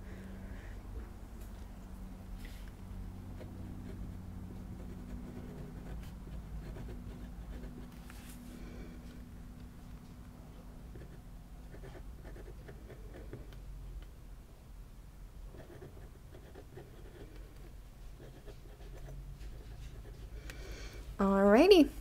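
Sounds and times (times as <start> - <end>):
fountain pen scratching on paper: 3.3 - 8.0, 10.9 - 13.5, 15.5 - 20.4.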